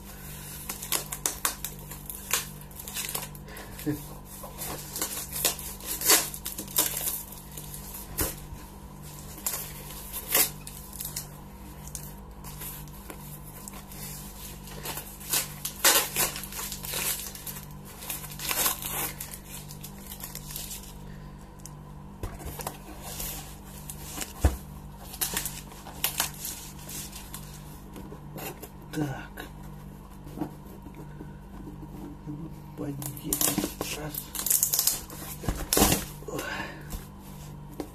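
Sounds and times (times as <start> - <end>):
low steady hum: 0.0 - 37.9
packaging crinkling: 0.1 - 21.8, 22.4 - 27.7, 32.9 - 36.4
packing tape ripping off cardboard: 0.5 - 8.5, 9.2 - 12.9, 13.6 - 20.9, 22.5 - 27.6, 33.1 - 36.4.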